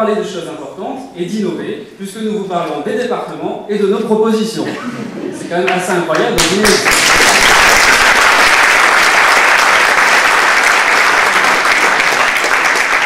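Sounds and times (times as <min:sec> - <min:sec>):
audience applauding: 0:06.1 - 0:13.0.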